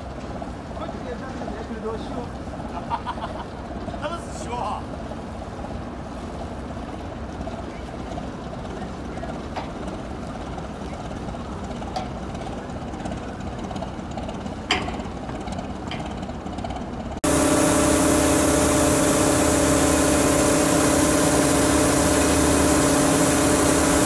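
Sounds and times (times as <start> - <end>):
boat diesel engines idling: 0.0 - 24.0
machine drone: 12.6 - 24.0
gravel pouring: 17.2 - 24.0.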